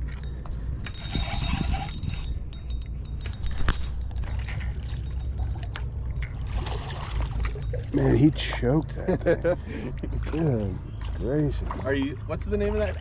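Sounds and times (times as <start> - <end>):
fishing gear clicking and rattling: 0.0 - 9.5
steady low rumble: 0.0 - 13.0.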